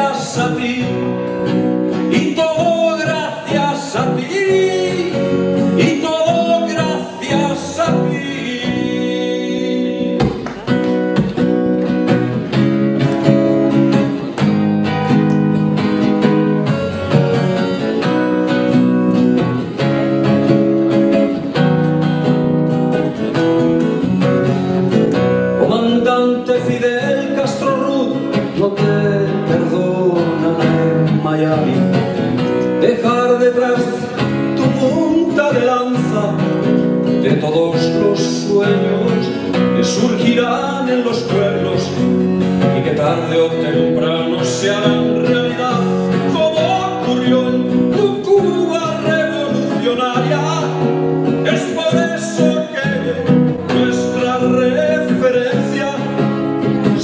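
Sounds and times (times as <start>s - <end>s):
person singing: 0.0s - 10.9s, 25.6s - 57.0s
acoustic guitar strumming: 0.0s - 57.0s.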